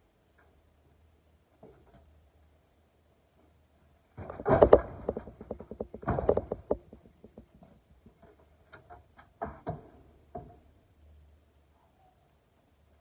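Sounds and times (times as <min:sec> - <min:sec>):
wooden boards clattering: 0:04.2 - 0:07.5.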